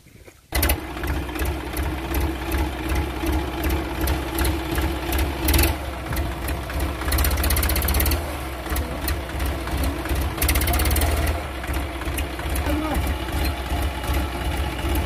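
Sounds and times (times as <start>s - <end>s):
tractor diesel engine knocking: 0.5s - 15.0s.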